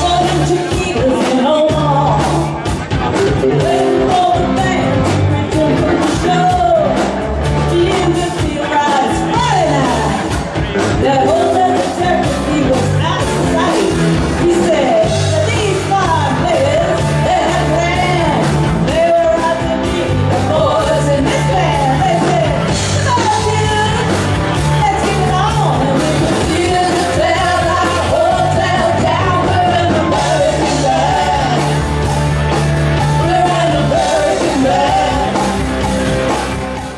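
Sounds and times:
bass guitar: 0.0s - 36.9s
drums: 0.0s - 36.9s
electric guitar: 0.0s - 36.9s
person singing: 0.0s - 36.9s.

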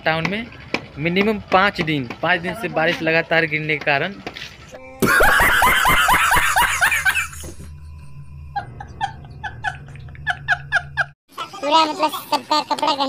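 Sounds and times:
man laughing hysterically: 5.0s - 7.7s, 8.6s - 11.6s.

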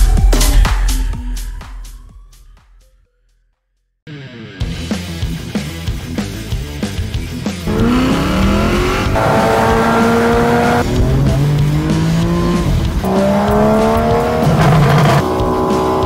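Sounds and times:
rock music: 4.1s - 16.0s
car engine revving: 7.6s - 16.0s.

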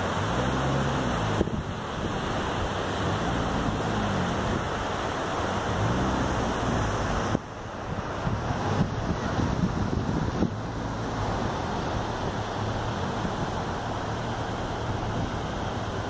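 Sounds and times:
ocean surf washing: 0.0s - 16.0s
wind buffeting microphone: 0.0s - 16.0s.

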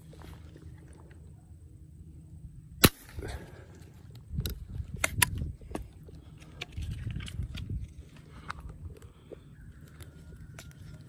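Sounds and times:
airgun shot: 2.8s - 3.4s.

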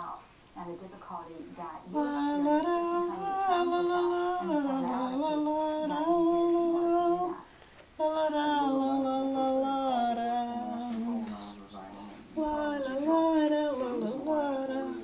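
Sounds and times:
elderly woman humming a lullaby: 1.9s - 15.0s.

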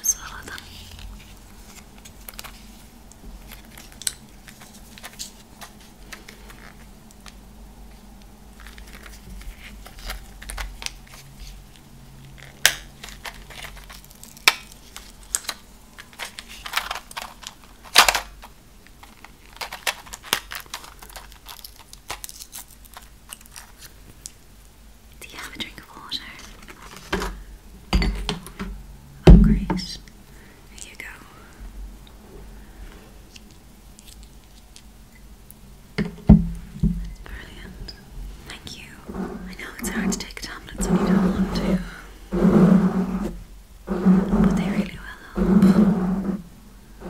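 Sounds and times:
blister pack crinkling: 8.6s - 24.4s.

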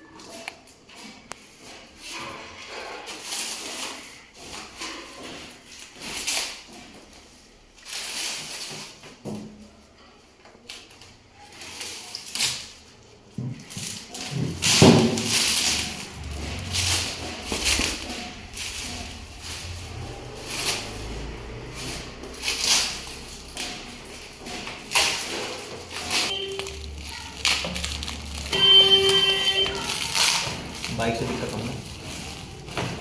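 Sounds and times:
plastic wrap crinkling: 10.7s - 33.0s.

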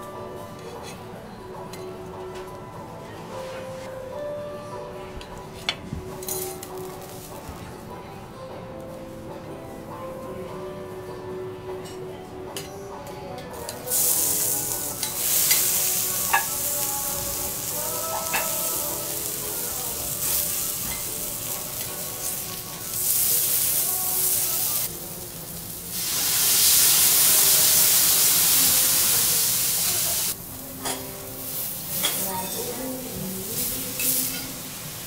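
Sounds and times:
beef sizzling on a griddle: 13.7s - 32.8s, 33.4s - 35.0s.

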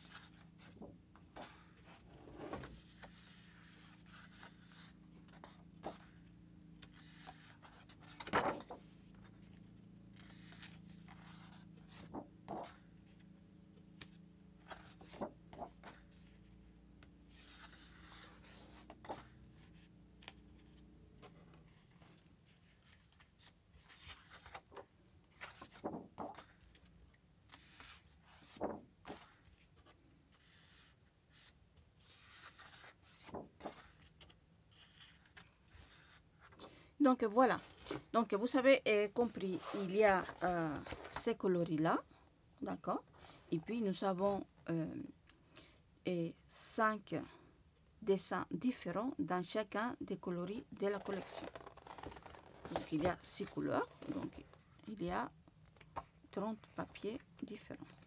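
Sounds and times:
paper rustling and sliding: 0.0s - 6.2s, 6.8s - 12.9s, 14.0s - 16.5s, 17.3s - 36.8s, 51.0s - 54.8s.

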